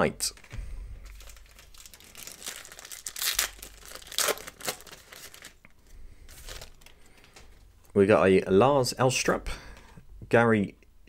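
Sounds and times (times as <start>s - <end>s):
foil wrapper tearing and crinkling: 1.1s - 5.6s, 6.3s - 7.0s.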